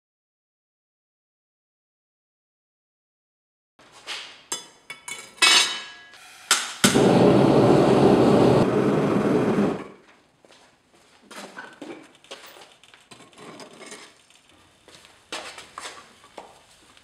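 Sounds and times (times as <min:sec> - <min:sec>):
gas burner roaring: 0:06.2 - 0:10.0.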